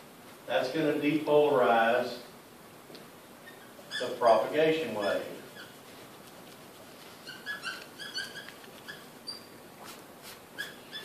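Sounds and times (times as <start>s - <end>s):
marker squeaking on whiteboard: 3.4s - 11.0s.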